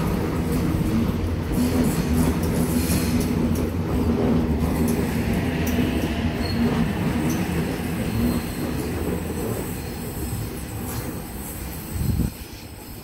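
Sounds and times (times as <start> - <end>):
wheels clacking over rail joints: 0.0 - 6.3
electric train rumbling: 0.0 - 13.0.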